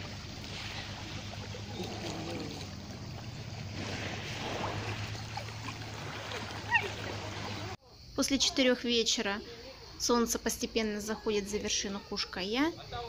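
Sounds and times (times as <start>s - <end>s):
waves washing around rocks: 0.0s - 7.8s.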